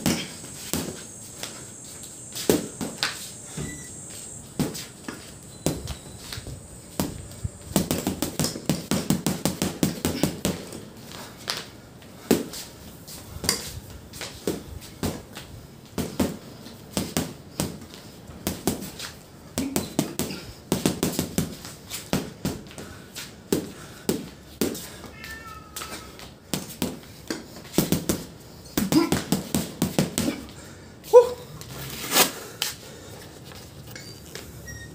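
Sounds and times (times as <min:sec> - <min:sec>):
gloves punching heavy bag: 0:07.0 - 0:10.8, 0:16.0 - 0:22.9, 0:26.5 - 0:30.5.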